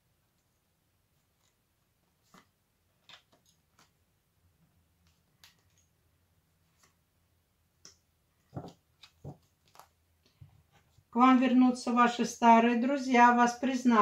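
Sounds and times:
cards clicking and rustling: 7.8s - 10.4s.

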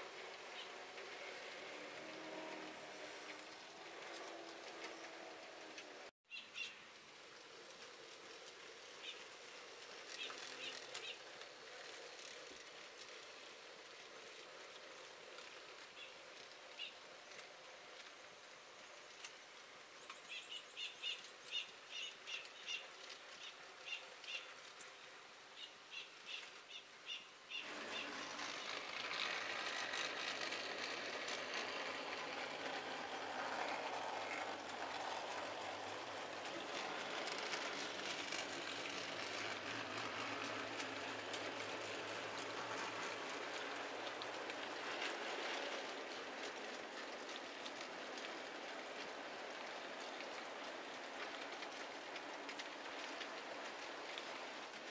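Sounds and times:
model train wheels hissing: 27.5s - 54.9s.

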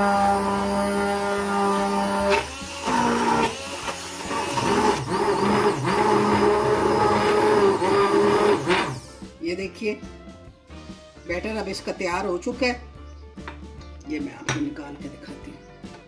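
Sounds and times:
hand blender motor humming: 0.0s - 9.2s.

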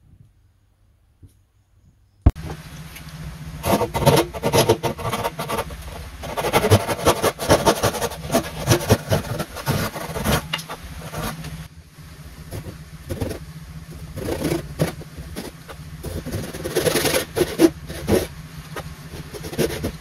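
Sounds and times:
hand saw rasping through wood: 3.6s - 11.6s, 14.0s - 20.0s.

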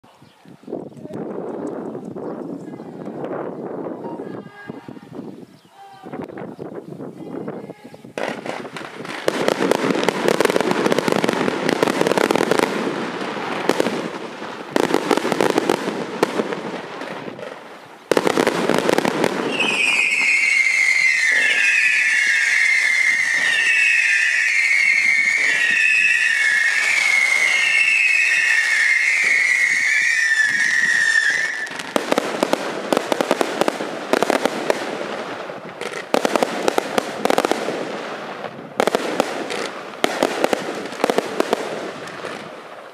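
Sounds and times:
firework crackling volleys: 8.1s - 42.9s
shrill wavering firework whistles: 19.4s - 32.0s.

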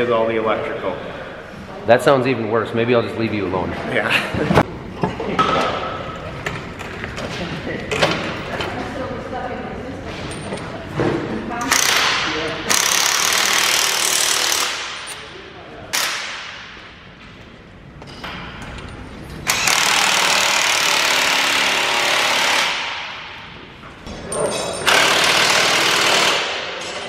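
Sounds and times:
impact wrench bursts: 11.7s - 15.2s, 15.9s - 16.6s, 19.4s - 23.3s, 24.8s - 26.8s.

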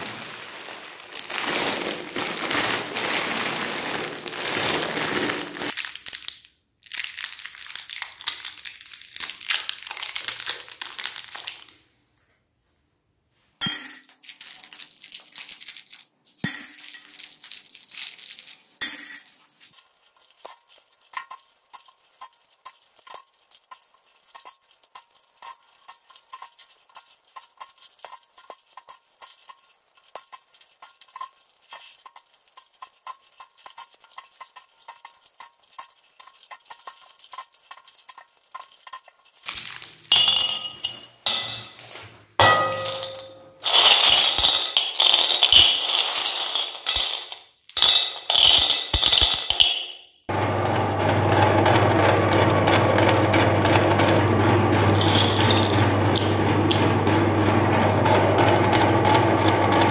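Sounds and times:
plastic wrappers crinkling: 0.0s - 11.9s, 14.1s - 49.8s, 55.0s - 56.3s
loud clattering and clinking: 40.1s - 41.8s, 42.4s - 49.9s, 54.9s - 56.9s
candies clicking into plastic bowl: 43.0s - 49.8s, 55.0s - 56.8s
meat grinder motor humming: 50.3s - 59.9s.

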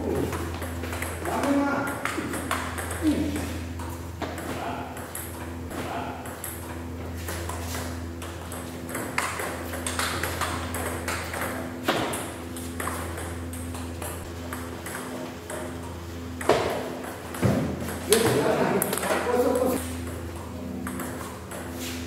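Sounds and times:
steady low hum: 0.0s - 22.0s
table tennis ball clicking: 0.3s - 3.0s, 8.2s - 15.8s.

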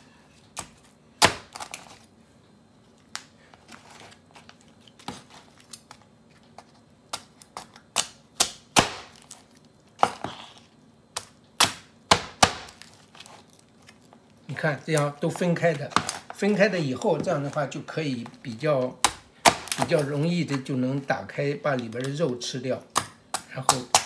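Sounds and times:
knife chopping onto wooden board: 8.4s - 9.2s, 11.6s - 12.8s
crab shell cracking: 22.9s - 24.0s.

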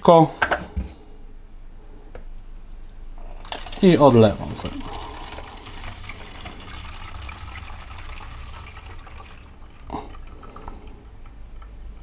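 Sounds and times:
water trickling into plastic bottle: 3.2s - 12.0s.

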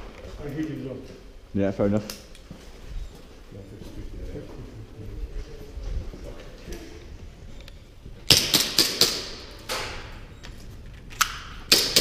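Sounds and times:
airsoft gun shots echoing: 8.3s - 10.0s, 11.3s - 12.0s.

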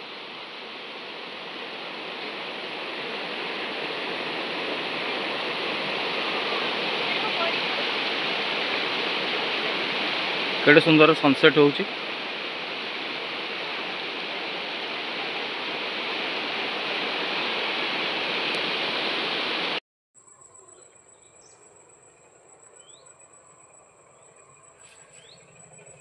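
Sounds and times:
river rushing over rocks: 0.0s - 19.8s
insect drone: 0.0s - 26.0s
bird chirps: 20.2s - 26.0s.

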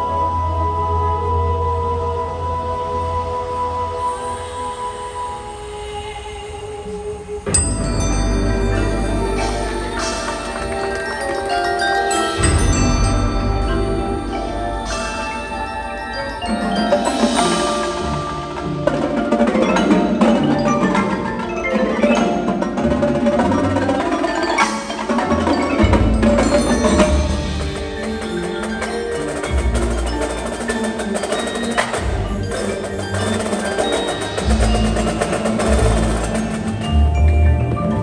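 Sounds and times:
marimbas playing chords and runs: 7.5s - 38.0s
marching snare and tenor drums: 8.4s - 16.1s, 16.7s - 37.1s.

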